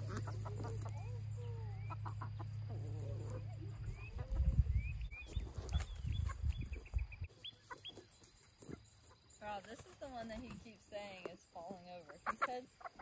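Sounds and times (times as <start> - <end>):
heavy low rumble: 0.0 - 7.3
chickens calling: 0.0 - 13.0.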